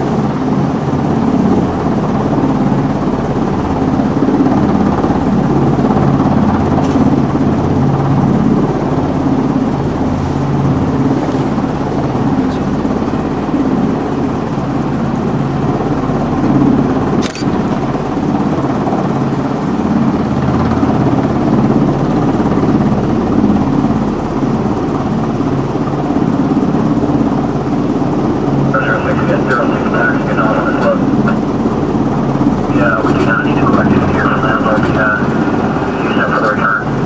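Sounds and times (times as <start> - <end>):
helicopter turbines and rotor: 0.0 - 37.0
short click: 17.2 - 17.6.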